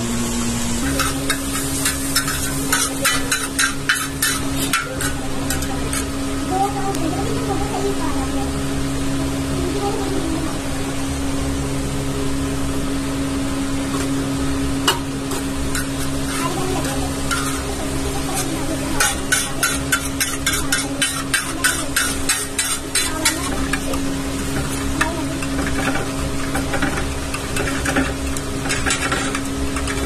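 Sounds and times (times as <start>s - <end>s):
frying sizzle: 0.0s - 30.0s
metal spatula striking steel griddle: 0.8s - 6.2s, 14.8s - 30.0s.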